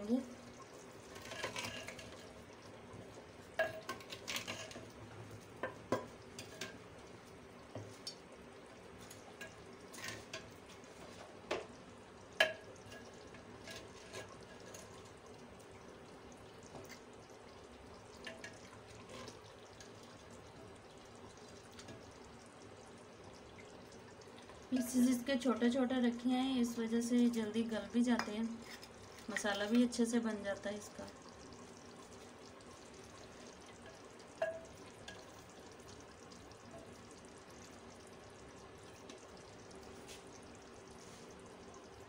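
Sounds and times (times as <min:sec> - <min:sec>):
ladle stirring thick curry: 0:00.6 - 0:06.9, 0:12.8 - 0:15.6, 0:18.0 - 0:22.1.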